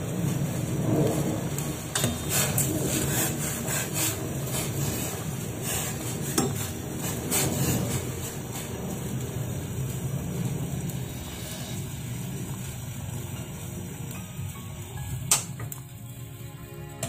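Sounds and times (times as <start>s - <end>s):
water boiling: 0.0s - 17.0s
metal skimmer scraping a pot: 1.9s - 9.0s.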